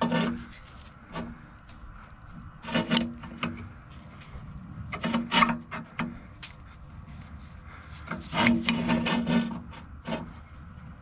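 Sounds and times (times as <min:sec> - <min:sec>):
pry bar scraping on metal: 0:00.0 - 0:01.5, 0:02.6 - 0:03.8, 0:04.8 - 0:06.3, 0:07.7 - 0:10.5.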